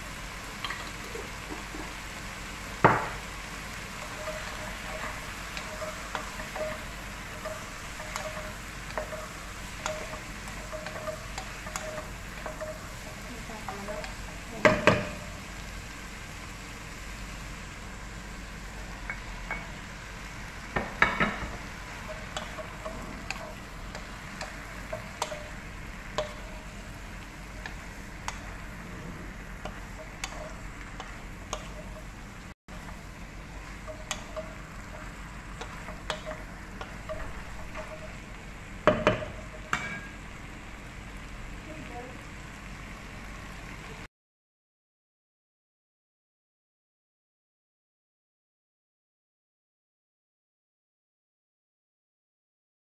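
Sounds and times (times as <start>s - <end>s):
vegetables sizzling in a pot: 0.0s - 44.1s
cookware clattering: 0.6s - 2.0s, 3.9s - 15.4s, 20.8s - 26.7s, 33.6s - 38.3s, 38.9s - 40.2s
wooden spatula stirring: 0.6s - 15.6s, 19.6s - 38.6s.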